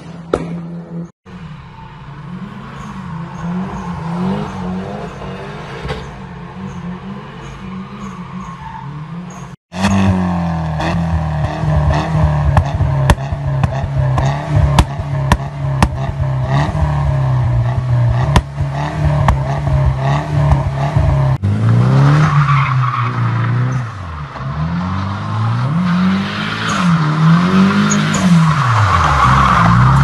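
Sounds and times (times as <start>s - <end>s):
engine revving: 0.0s - 30.0s
tyre squeal: 1.5s - 9.6s
exhaust pops and crackles: 9.7s - 17.0s, 17.7s - 21.4s.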